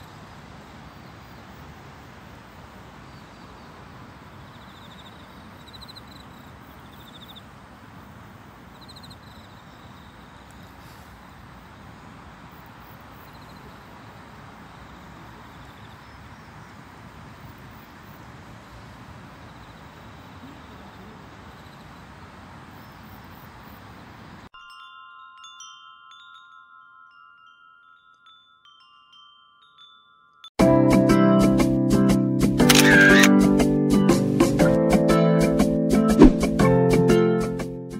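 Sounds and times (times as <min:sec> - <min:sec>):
outdoor background hiss: 0:00.0 - 0:30.6
wind chimes tinkling: 0:24.5 - 0:30.6.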